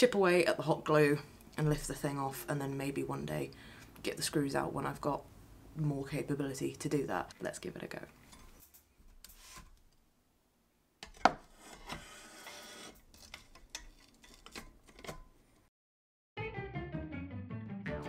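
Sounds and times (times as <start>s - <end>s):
music: 16.4s - 18.0s.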